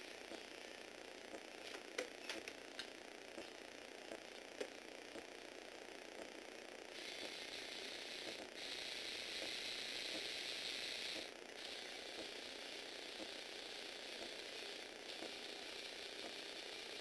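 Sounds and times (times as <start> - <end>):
toy electric motors and plastic gears: 6.9 - 17.0.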